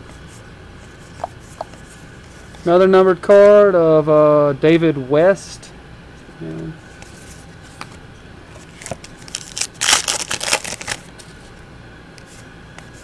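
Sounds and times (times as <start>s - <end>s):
plastic crinkling: 8.6s - 11.1s
trading cards rustling: 8.6s - 11.4s.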